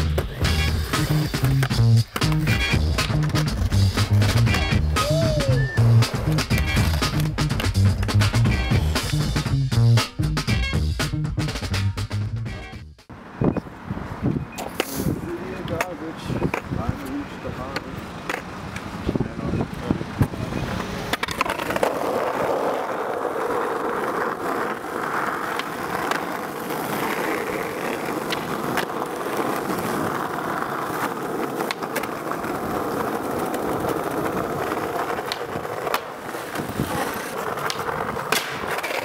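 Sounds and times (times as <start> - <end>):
skateboard clacks: 0.0 - 9.4, 15.6 - 18.9, 20.1 - 39.0
skateboard wheels rolling on asphalt: 0.0 - 9.5, 13.2 - 39.0.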